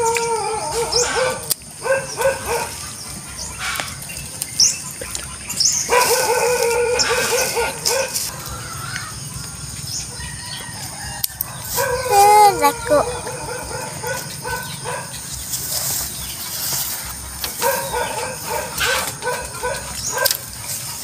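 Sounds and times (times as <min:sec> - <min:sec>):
dog whining and howling: 0:00.0 - 0:02.8, 0:05.9 - 0:08.7, 0:11.4 - 0:15.1.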